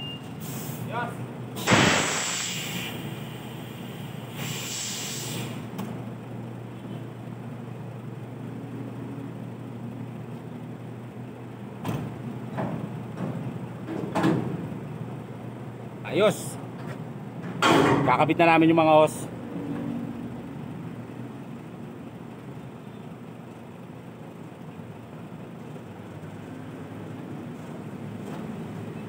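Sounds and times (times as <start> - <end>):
air brake hissing: 0.2 - 0.9, 1.6 - 5.8
diesel engine idling hum: 2.5 - 13.8, 19.3 - 29.0.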